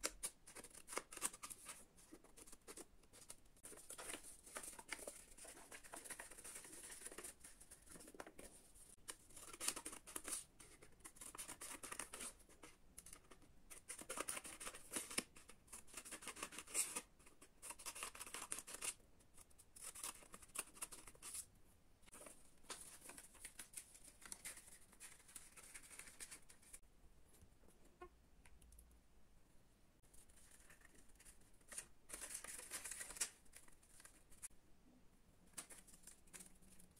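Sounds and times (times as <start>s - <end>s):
paper rustling: 0.1s - 12.7s, 30.2s - 34.5s.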